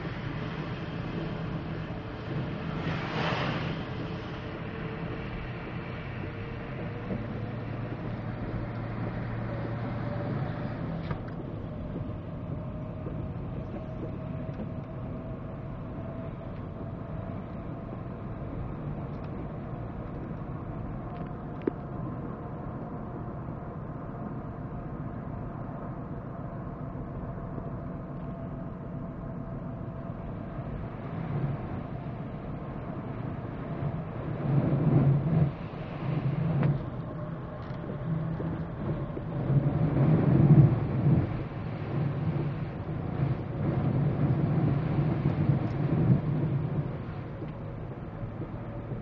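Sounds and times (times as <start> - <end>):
tyres on wet pavement: 0.0 - 22.1
car road and engine noise: 0.0 - 49.0.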